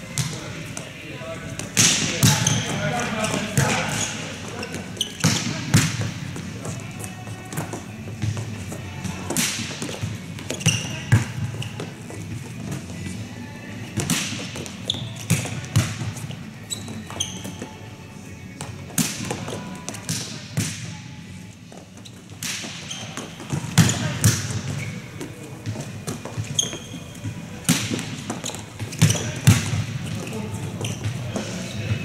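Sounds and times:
balls bouncing on court floor: 0.0s - 17.9s, 18.5s - 21.0s, 21.6s - 32.0s
volleyball slapping on hands: 9.3s - 11.3s, 14.0s - 16.1s, 22.3s - 24.7s.

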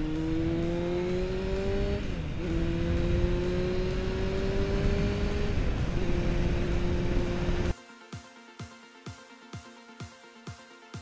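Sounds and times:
motorcycle engine accelerating: 0.0s - 7.7s
wind rush: 3.9s - 7.7s.

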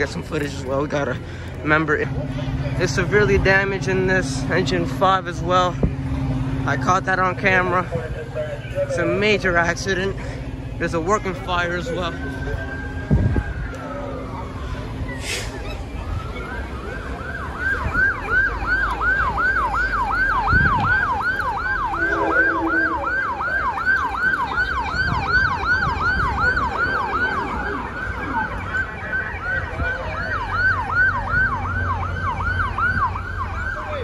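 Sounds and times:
low engine rumble: 0.0s - 34.0s
police siren yelping: 10.9s - 34.0s.

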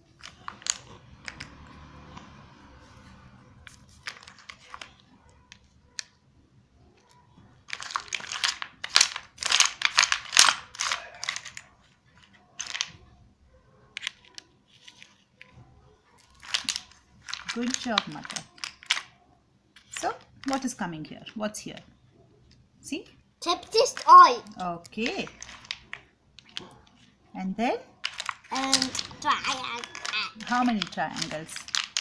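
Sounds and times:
plastic blocks clicking and clattering: 0.0s - 1.8s, 3.6s - 6.2s, 7.0s - 13.1s, 13.9s - 15.5s, 16.2s - 19.2s, 23.4s - 27.1s, 28.0s - 32.0s.

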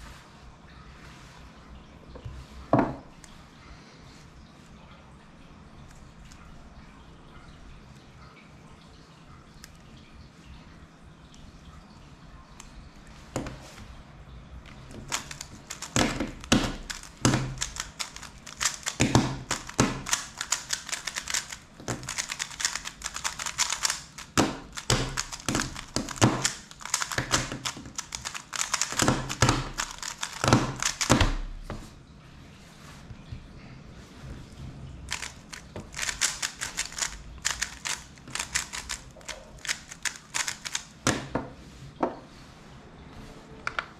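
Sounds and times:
puzzle cube plastic clicks: 14.7s - 31.5s, 35.1s - 41.3s.

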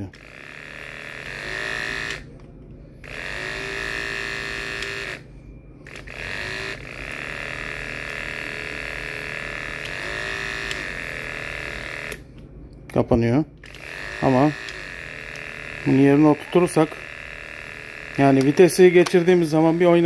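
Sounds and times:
hair clipper whining: 0.0s - 2.4s, 3.0s - 12.4s, 13.6s - 20.0s.

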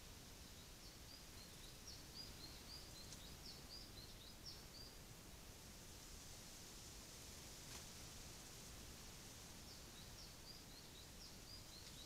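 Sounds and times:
songbird chirping: 0.0s - 5.0s, 9.6s - 12.0s
background hiss: 0.0s - 12.0s.

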